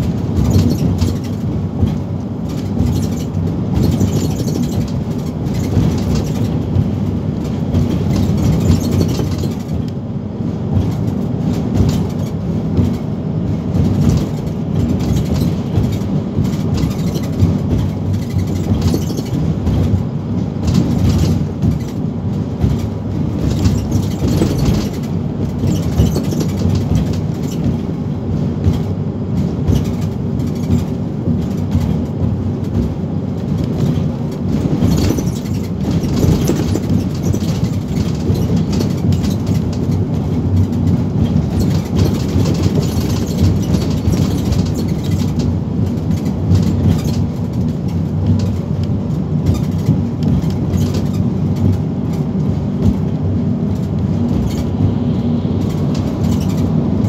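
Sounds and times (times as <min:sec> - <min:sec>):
bus engine and tyres drone: 0:00.0 - 0:57.0
light clicks and rattles: 0:10.7 - 0:28.0, 0:28.6 - 0:54.8, 0:55.6 - 0:56.8.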